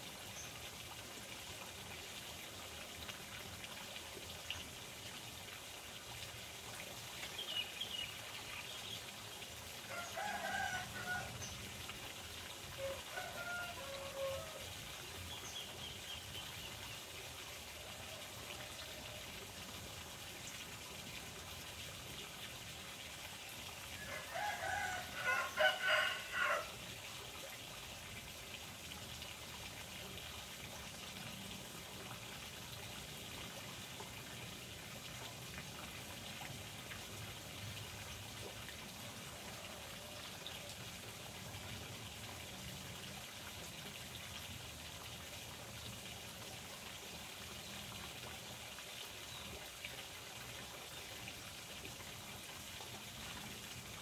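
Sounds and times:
running water trickling: 0.0s - 54.0s
rooster crowing: 9.9s - 11.4s, 12.8s - 14.6s, 24.0s - 26.8s.

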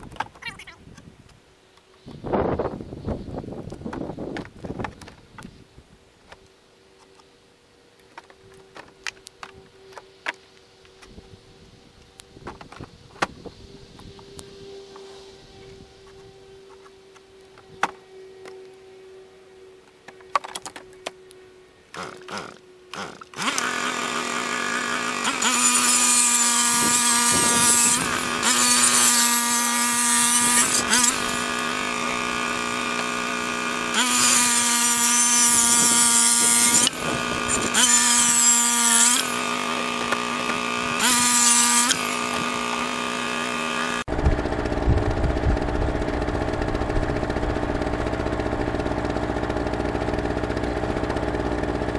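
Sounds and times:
power tool whining: 8.2s - 51.9s
power tool cutting wood: 21.9s - 51.9s.

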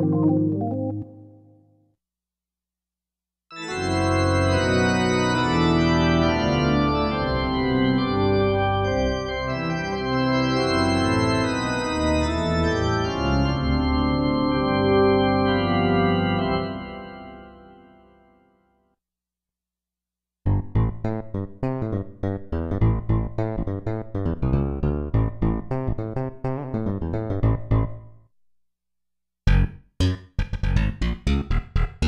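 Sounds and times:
synthesizer chords over bass: 0.0s - 1.6s, 20.5s - 28.2s, 29.5s - 32.0s.

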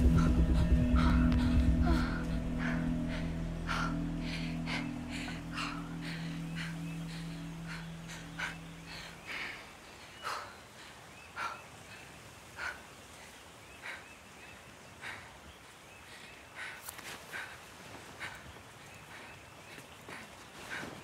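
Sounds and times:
low held music note: 0.0s - 9.1s
woman breathing heavily: 0.0s - 21.0s.

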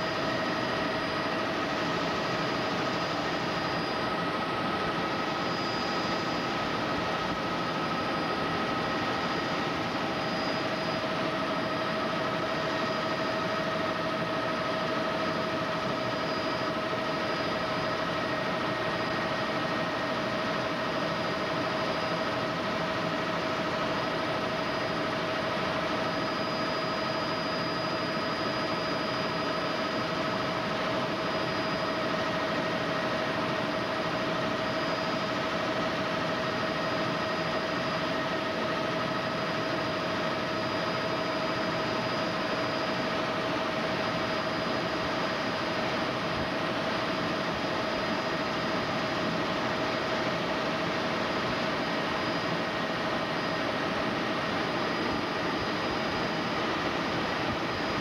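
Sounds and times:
helicopter engine and rotor drone: 0.0s - 58.0s
steady whine: 0.0s - 58.0s.

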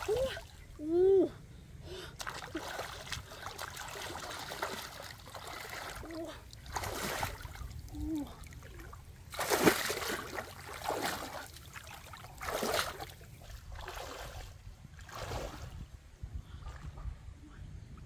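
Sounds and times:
splashing while wading through water: 2.2s - 15.8s.

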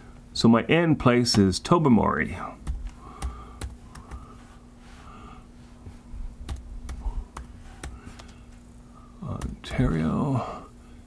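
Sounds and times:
faint steady hum: 0.0s - 11.0s
laptop keyboard typing: 2.6s - 4.4s, 6.4s - 8.6s, 9.2s - 10.0s.

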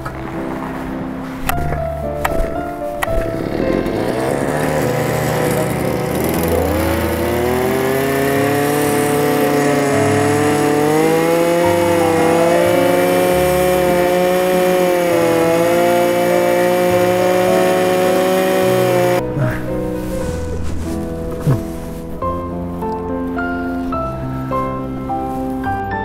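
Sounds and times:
ice auger engine running: 3.2s - 19.2s.

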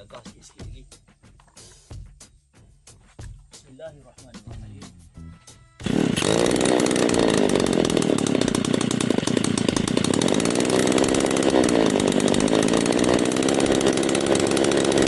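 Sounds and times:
brush cutter engine running: 5.8s - 15.0s.

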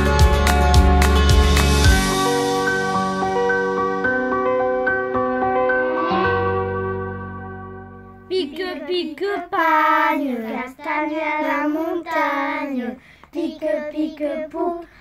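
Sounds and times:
child singing: 8.3s - 15.0s.

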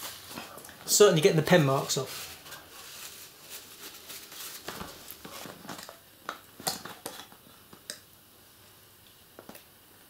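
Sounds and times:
paper tissue rustling: 0.0s - 5.9s.

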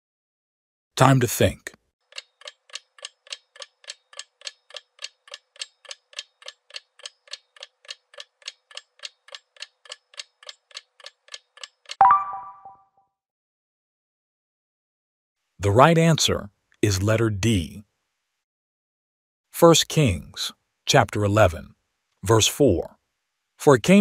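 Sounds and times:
clock-like ticking: 2.1s - 12.0s
ringing ding: 12.0s - 12.8s.

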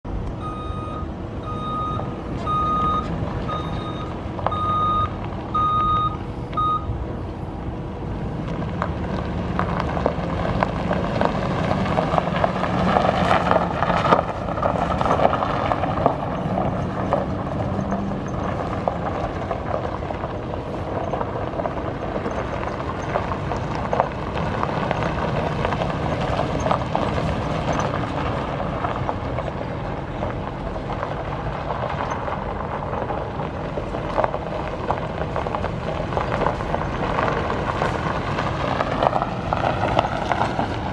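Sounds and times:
truck engine running: 0.0s - 40.9s
electronic warning beeps: 0.4s - 7.0s.

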